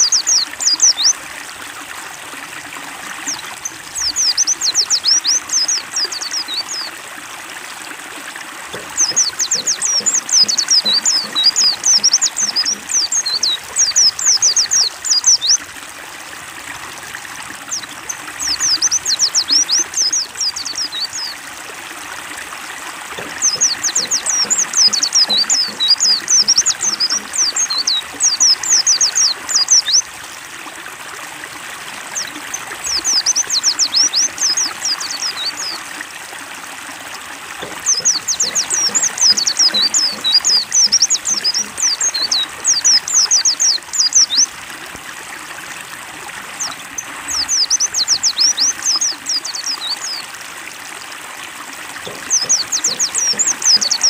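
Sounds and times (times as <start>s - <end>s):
high twittering birdsong: 0.0s - 1.2s, 3.2s - 7.0s, 8.7s - 15.6s, 17.6s - 21.4s, 23.2s - 30.1s, 32.1s - 35.8s, 37.6s - 44.6s, 46.5s - 50.3s, 52.0s - 54.0s
trickling splashing water: 0.0s - 54.0s.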